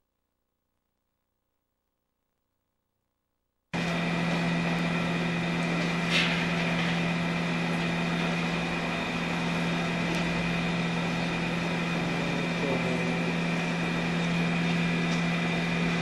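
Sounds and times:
machinery humming: 3.8s - 16.0s.

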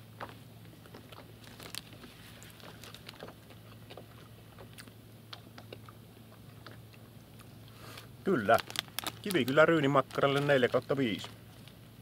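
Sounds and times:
person chewing: 0.8s - 9.3s
plastic packet handled: 1.4s - 3.2s, 8.3s - 11.8s.

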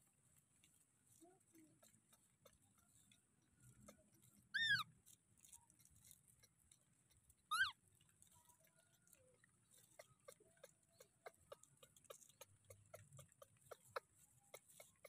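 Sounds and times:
baby monkey coo calls: 4.6s - 4.9s, 7.5s - 7.8s.

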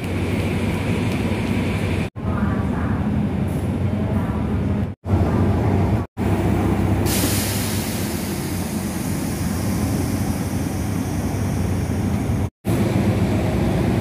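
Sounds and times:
diesel locomotive idling: 0.0s - 14.0s
hiss: 7.0s - 11.7s.

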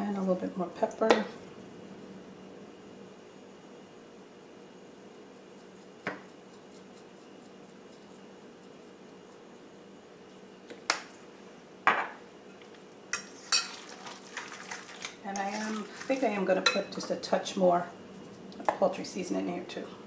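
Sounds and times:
faint steady hum: 0.0s - 20.0s
utensil clinking in a glass bowl: 13.1s - 17.2s.

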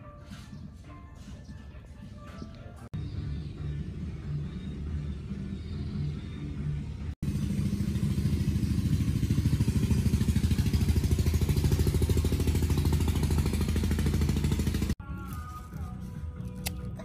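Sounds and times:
small engine running: 3.0s - 16.1s.

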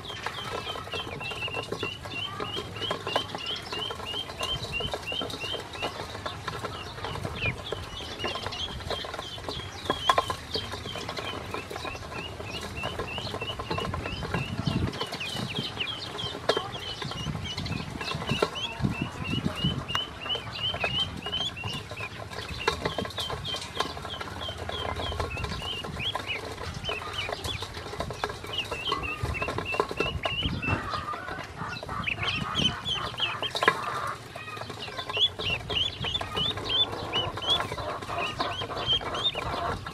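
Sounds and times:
ducklings peeping: 0.0s - 39.9s.

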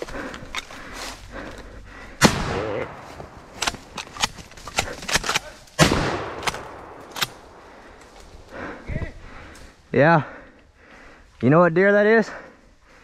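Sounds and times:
shotgun blasts with echo: 2.2s - 3.9s, 4.8s - 7.7s.

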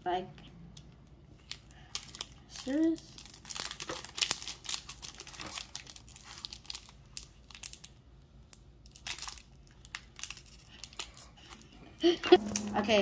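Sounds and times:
foil wrapper crinkling and tearing: 1.4s - 12.7s.

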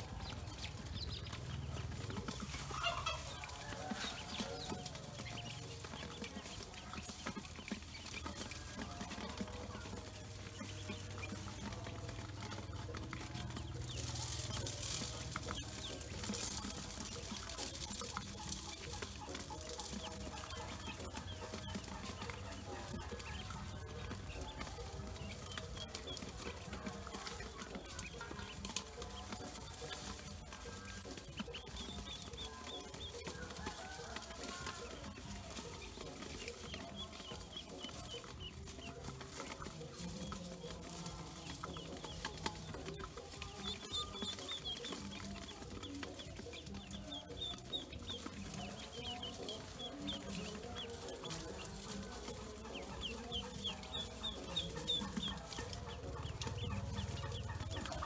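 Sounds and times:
ducklings peeping: 0.0s - 58.0s.

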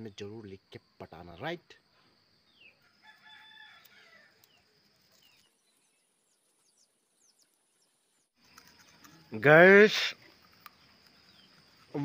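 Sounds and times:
bird chirps: 0.0s - 2.9s, 3.9s - 9.5s, 10.1s - 12.0s
rooster crowing: 2.8s - 4.4s.

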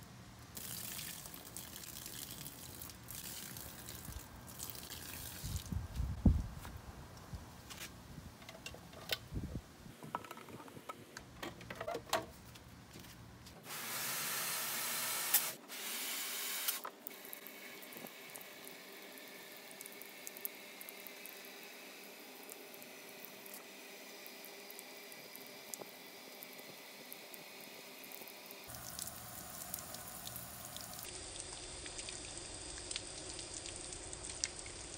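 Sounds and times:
water splashing and pouring: 0.6s - 5.8s.

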